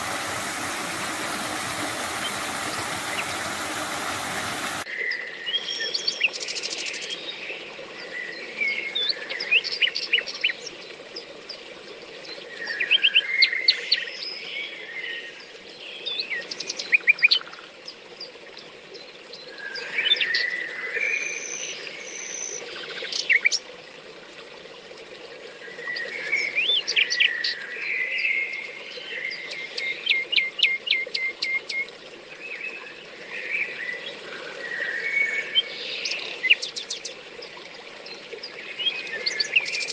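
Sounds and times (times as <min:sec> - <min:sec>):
songbirds chirping and trilling: 0:00.0 - 0:04.8.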